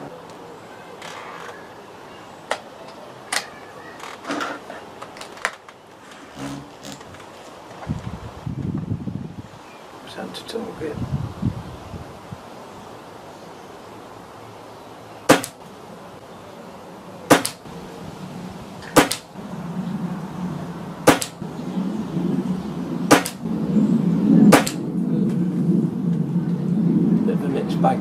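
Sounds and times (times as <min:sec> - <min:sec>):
air rifle shots: 0:15.3 - 0:15.6, 0:17.3 - 0:17.6, 0:18.9 - 0:19.3, 0:21.0 - 0:21.4, 0:23.1 - 0:23.4, 0:24.5 - 0:24.8
low rumble: 0:17.6 - 0:28.0.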